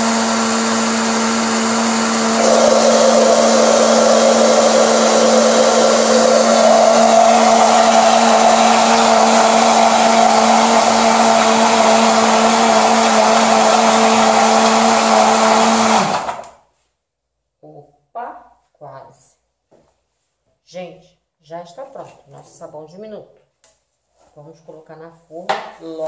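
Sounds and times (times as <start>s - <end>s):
blender motor humming: 0.0s - 16.5s
blender motor winding down: 0.0s - 16.5s.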